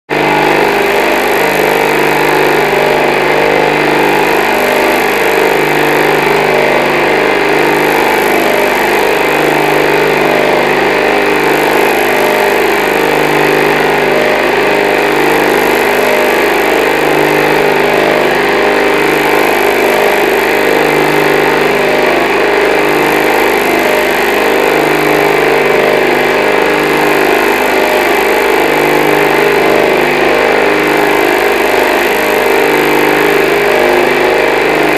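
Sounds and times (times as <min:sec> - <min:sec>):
electric motor humming and whirring: 0:00.1 - 0:34.9.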